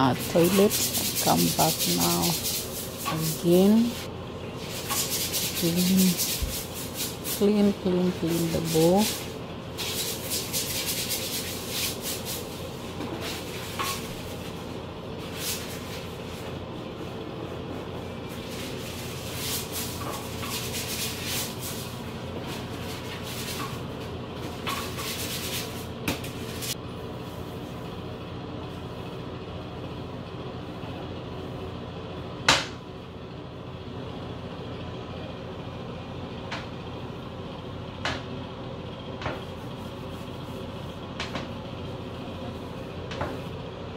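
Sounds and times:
toilet brush scrubbing bowl: 0.0s - 26.8s
steady low hum: 0.0s - 43.9s.

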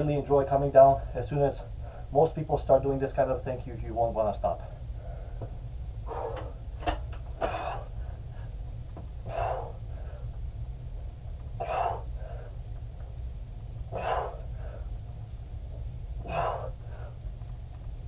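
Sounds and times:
steady low hum: 0.0s - 18.0s
man exhaling forcefully: 6.0s - 6.6s, 9.2s - 10.2s, 11.6s - 12.6s, 13.9s - 14.8s, 16.2s - 17.2s.

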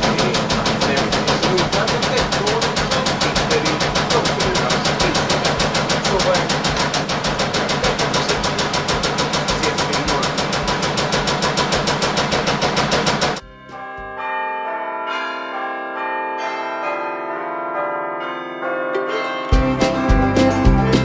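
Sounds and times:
washing machine running: 0.0s - 13.4s
bell-like chiming music: 13.4s - 21.0s.

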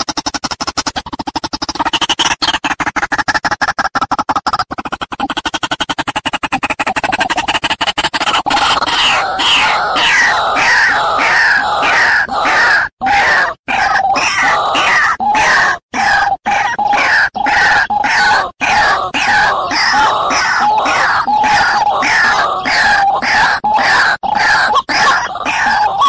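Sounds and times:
harsh repeated bird calls: 0.0s - 26.0s.

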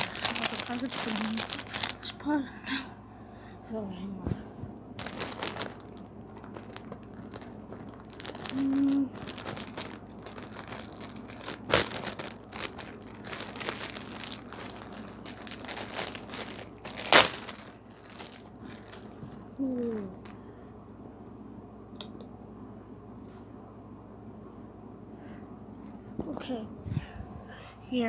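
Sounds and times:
packaging crinkling and rustling: 0.0s - 2.2s, 5.0s - 20.4s
low hum-like tones: 0.0s - 28.0s.

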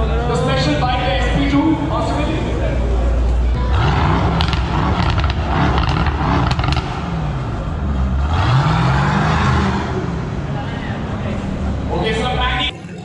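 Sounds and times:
car engine revving: 3.5s - 12.6s
exhaust crackles and pops: 3.8s - 7.3s.

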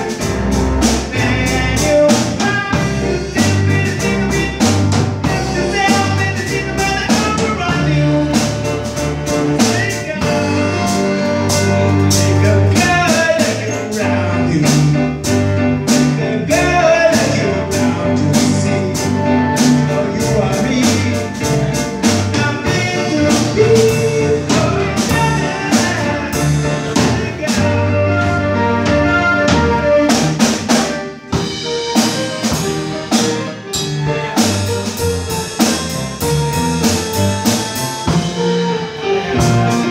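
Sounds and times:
live rock band playing: 0.0s - 39.9s
lead vocal singing: 0.8s - 8.7s, 9.5s - 11.4s, 12.2s - 15.2s, 15.9s - 28.5s.

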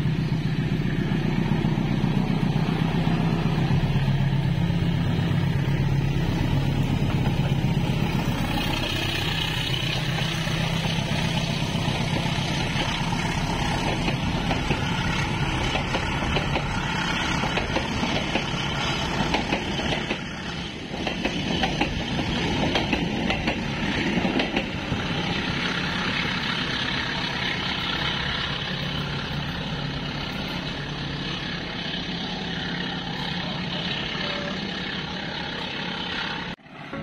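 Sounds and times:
train wheels clattering on rails: 6.3s - 31.8s.

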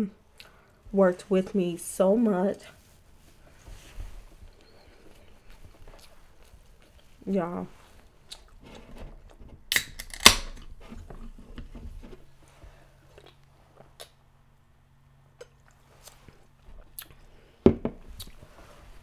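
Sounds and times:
chewing and mouth noises: 4.6s - 7.2s, 13.0s - 14.2s, 15.3s - 17.4s, 18.2s - 18.4s.

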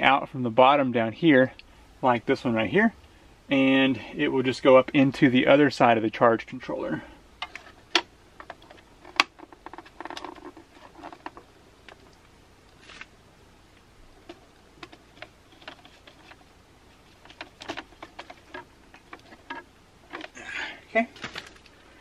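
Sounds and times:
hands rustling with wire: 7.4s - 22.0s.

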